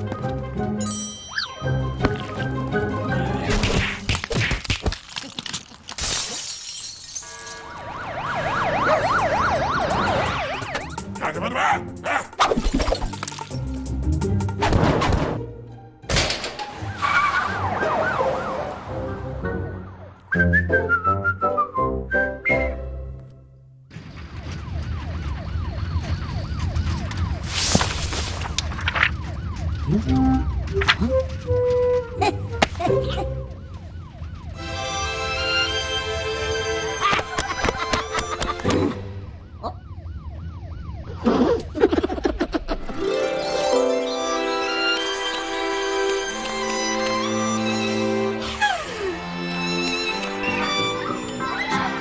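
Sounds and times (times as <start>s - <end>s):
cartoon music: 1.0s - 3.5s, 41.1s - 52.0s
alarm siren wailing: 1.3s - 3.5s, 7.3s - 11.2s, 17.0s - 19.7s, 24.1s - 27.5s, 28.6s - 32.0s, 33.3s - 37.0s, 39.1s - 42.0s
siren yelping: 1.3s - 3.5s, 7.6s - 11.4s, 17.0s - 19.0s, 39.1s - 42.7s
glass window shattering: 4.0s - 7.4s.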